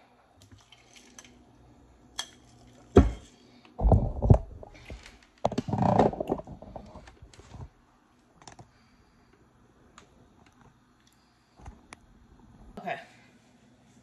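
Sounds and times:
phone bumps and scraping: 3.8 - 7.7.

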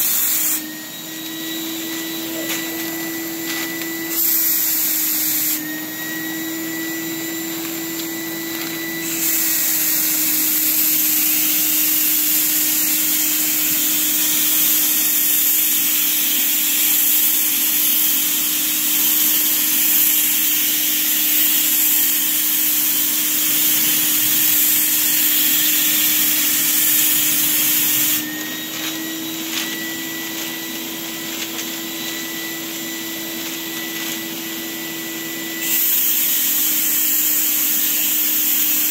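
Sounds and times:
air motor whine: 0.0 - 38.9
spray gun hissing: 0.0 - 38.9.

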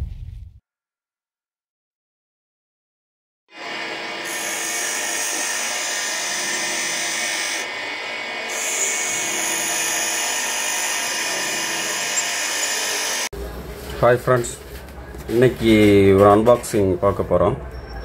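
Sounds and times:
angle grinder cutting metal: 3.5 - 13.3.

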